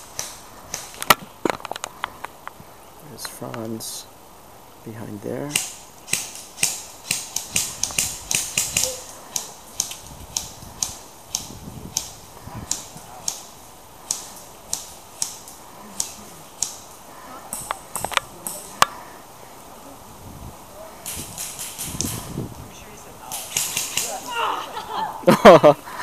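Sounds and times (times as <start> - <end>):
airsoft gun shots: 5.5 - 9.0, 23.3 - 24.2.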